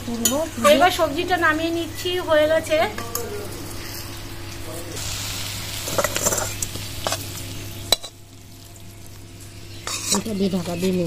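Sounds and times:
curry sizzling: 0:00.0 - 0:11.0
metal spatula scraping: 0:05.8 - 0:07.2, 0:09.8 - 0:10.4.

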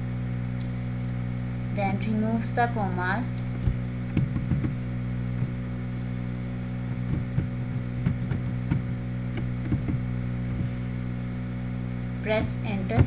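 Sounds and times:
electrical mains hum: 0:00.0 - 0:13.0
laptop keys tapping: 0:03.6 - 0:04.8, 0:05.4 - 0:05.6, 0:06.9 - 0:10.8.

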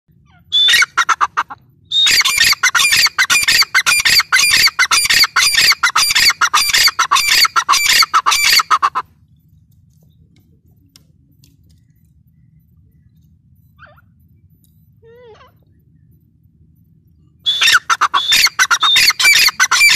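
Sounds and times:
bird calling harsh notes: 0:00.2 - 0:09.1, 0:17.4 - 0:19.9.

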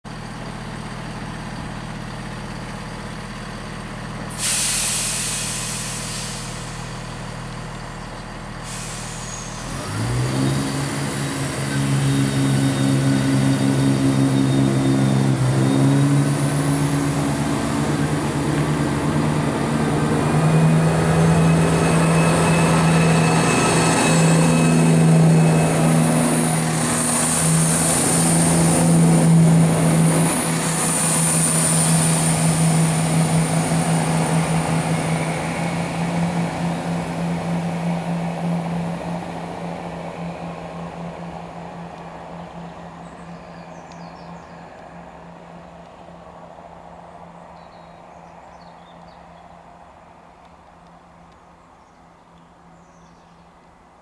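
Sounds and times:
diesel train engine: 0:00.0 - 0:54.0
air brakes hissing: 0:04.3 - 0:07.3, 0:08.5 - 0:15.3
high whine: 0:10.8 - 0:46.0.

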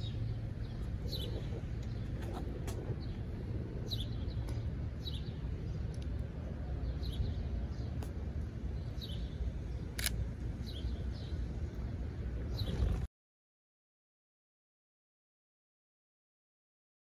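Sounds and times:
bird chirping: 0:00.0 - 0:03.2, 0:03.8 - 0:06.0, 0:06.8 - 0:08.0, 0:08.7 - 0:10.0, 0:10.6 - 0:11.5, 0:12.4 - 0:13.0
steady low rumble: 0:00.0 - 0:13.1
camera shutter click: 0:10.0 - 0:10.2.

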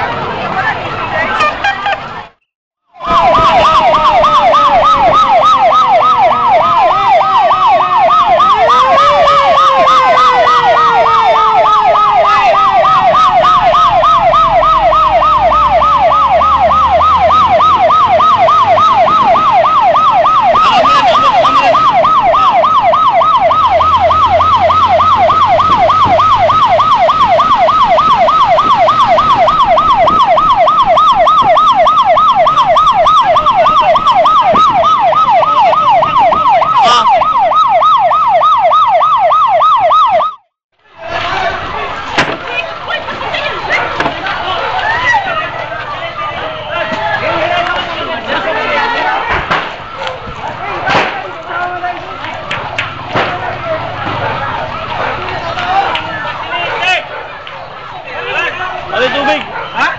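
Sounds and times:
lower siren tone sliding: 0:03.0 - 0:40.5
siren yelping rapidly: 0:03.0 - 0:40.5, 0:52.0 - 0:59.9.

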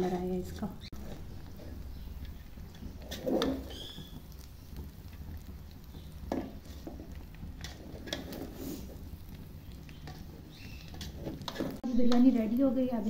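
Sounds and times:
spatula scraping a steel pot: 0:00.9 - 0:04.4, 0:06.3 - 0:11.8
rice rustling: 0:00.9 - 0:13.0.

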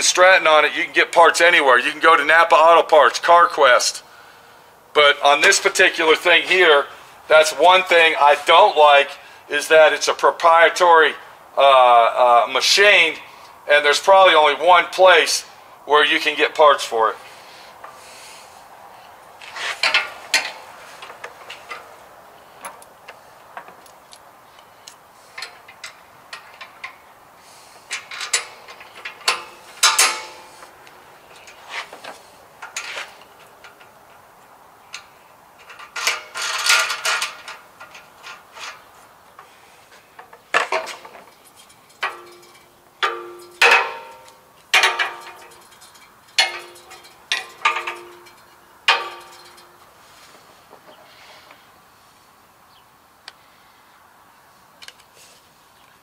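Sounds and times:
metal handle parts clicking and rattling: 0:19.8 - 0:21.9, 0:22.6 - 0:27.0, 0:27.9 - 0:39.5, 0:40.2 - 0:49.9.

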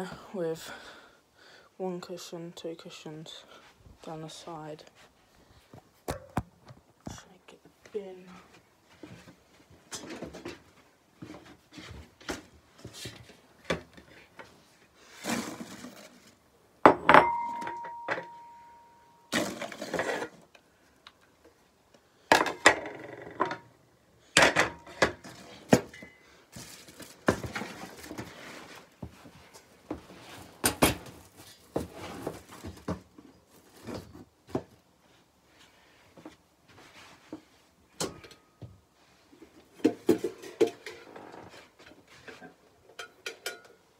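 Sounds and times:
household objects knocking and clinking: 0:16.8 - 0:18.6.

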